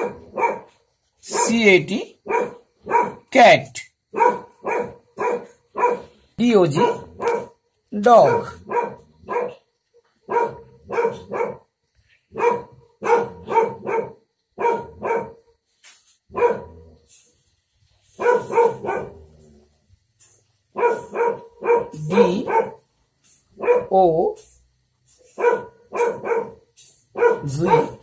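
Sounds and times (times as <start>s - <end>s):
dog barking: 0.0s - 3.3s, 4.1s - 11.7s, 12.3s - 15.4s, 16.3s - 16.8s, 18.1s - 19.4s, 20.7s - 22.9s, 23.5s - 24.0s, 25.2s - 28.0s.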